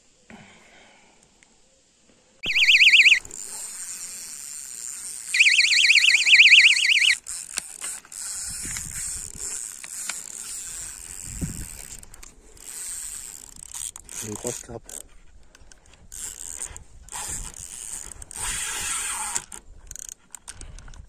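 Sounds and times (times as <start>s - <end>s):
electronic bite alarm warbling: 2.4s - 3.3s, 5.4s - 7.2s
rustling and rod handling: 7.2s - 18.4s.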